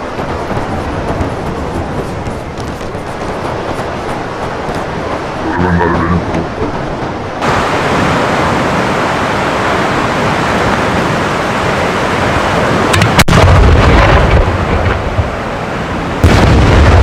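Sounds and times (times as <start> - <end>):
steady rushing hiss: 0.0 - 9.1.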